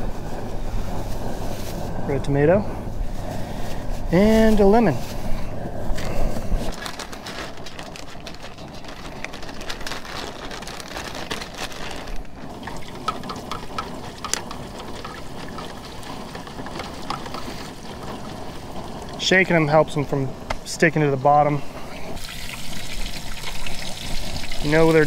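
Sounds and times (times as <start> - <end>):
fish sizzling in deep fryer oil: 12.4 - 20.0, 22.2 - 25.0.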